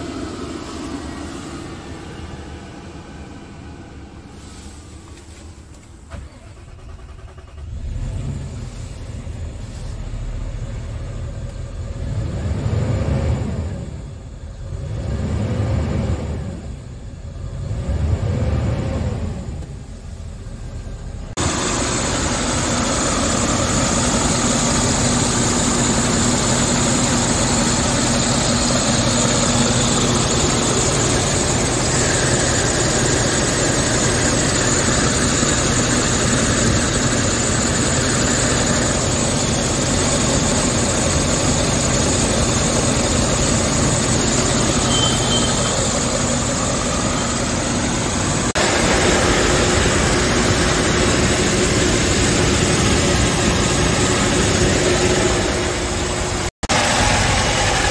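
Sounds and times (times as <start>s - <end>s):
diesel truck engine idling and revving: 0.0s - 57.9s.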